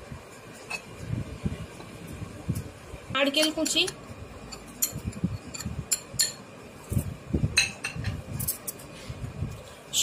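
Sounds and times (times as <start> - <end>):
glass bowls clinking: 3.4 - 6.4, 7.6 - 8.1.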